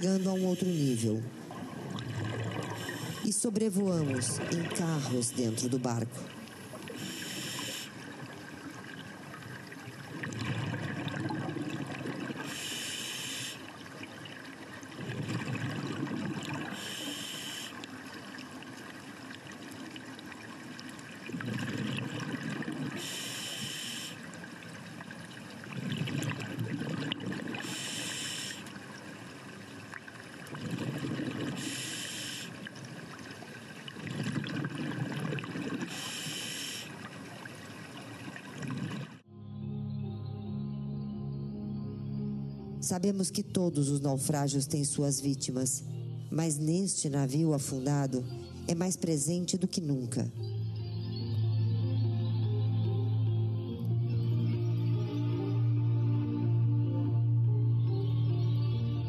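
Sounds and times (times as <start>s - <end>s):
regulator inhalation hiss: 0.0s - 1.0s, 2.7s - 3.3s, 6.9s - 8.1s, 12.4s - 13.8s, 16.7s - 17.9s, 23.0s - 24.3s, 27.6s - 28.8s, 31.6s - 32.7s, 35.9s - 37.1s
burble of exhaled bubbles: 1.4s - 3.1s, 8.1s - 12.6s, 14.0s - 16.9s, 19.4s - 23.1s, 25.5s - 27.8s, 30.4s - 31.8s, 33.8s - 36.0s, 37.1s - 39.2s.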